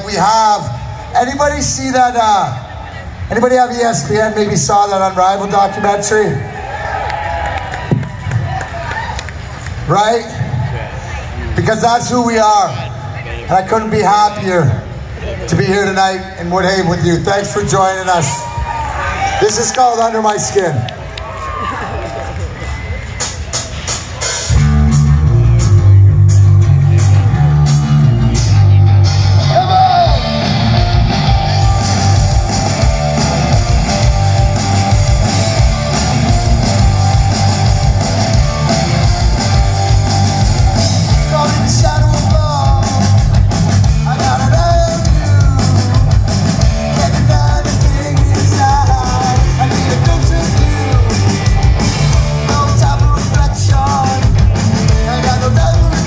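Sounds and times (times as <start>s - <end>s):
live rock band playing: 22.8s - 56.0s
male lead vocal: 41.1s - 43.3s, 44.0s - 46.2s, 46.8s - 51.5s, 52.4s - 56.0s.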